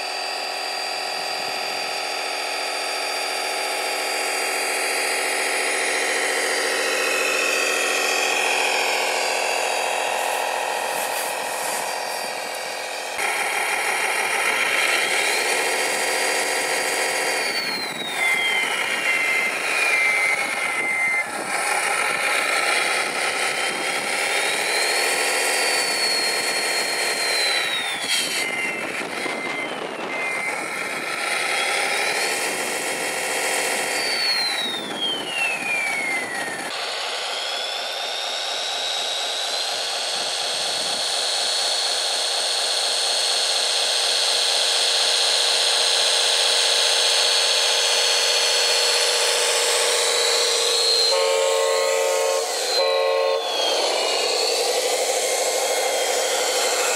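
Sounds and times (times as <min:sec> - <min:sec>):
steady climbing whine: 0:00.0 - 0:56.9
toy truck motor whining: 0:00.0 - 0:56.9
short beeps: 0:27.4 - 0:30.7.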